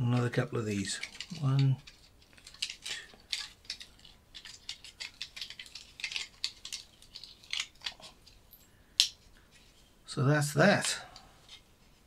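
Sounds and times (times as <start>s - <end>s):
wire unwinding with scratchy crackles: 0.0s - 8.4s.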